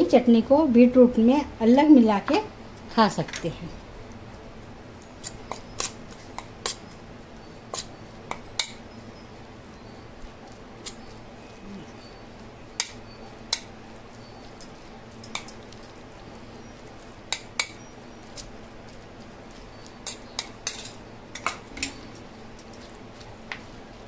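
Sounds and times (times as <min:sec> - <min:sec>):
spoon clinking against metal dish: 0:14.6 - 0:15.6, 0:20.0 - 0:22.0.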